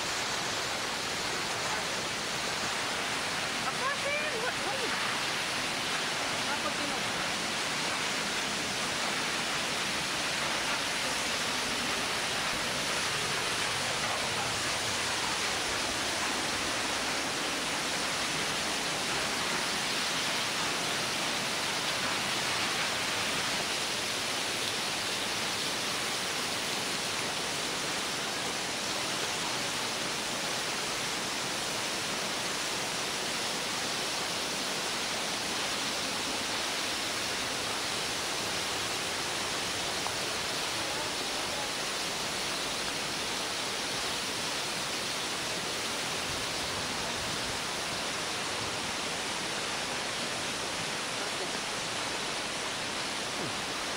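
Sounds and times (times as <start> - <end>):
waterfall rushing: 0.0 - 53.9.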